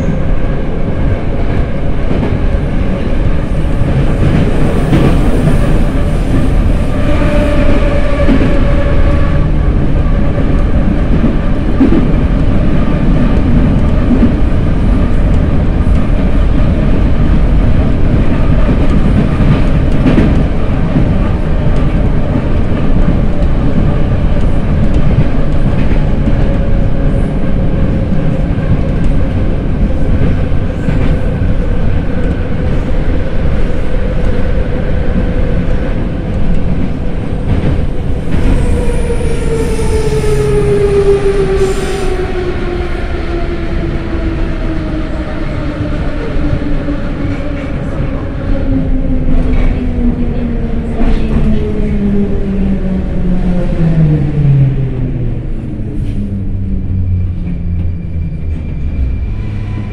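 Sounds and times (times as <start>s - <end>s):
track clacks: 0.0s - 52.1s
metro train wheels rumbling: 0.0s - 59.9s.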